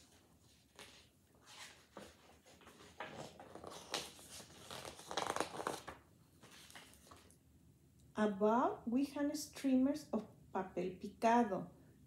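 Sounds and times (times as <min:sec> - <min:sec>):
paper pages rustling: 0:00.0 - 0:07.4.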